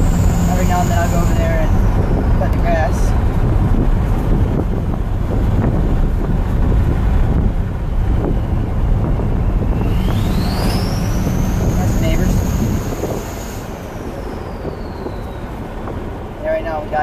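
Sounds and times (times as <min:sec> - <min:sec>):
diesel engine and road drone: 0:00.0 - 0:17.0
turbo whistle: 0:08.3 - 0:15.6.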